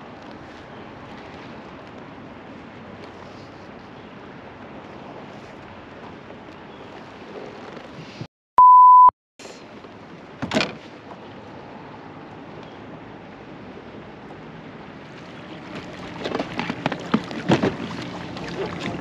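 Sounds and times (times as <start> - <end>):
censor bleep: 8.6 - 9.1.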